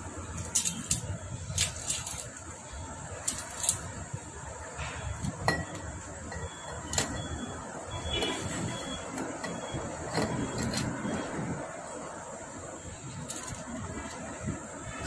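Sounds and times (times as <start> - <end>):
metallic clicks and clinks of tools: 0.4 - 2.4, 3.2 - 3.9, 13.2 - 13.8.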